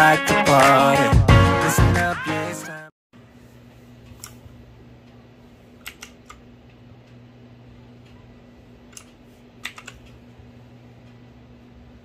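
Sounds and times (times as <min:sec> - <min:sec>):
steady low hum: 0:03.2 - 0:12.0
mechanical keyboard clicks: 0:05.8 - 0:06.4, 0:08.9 - 0:10.2.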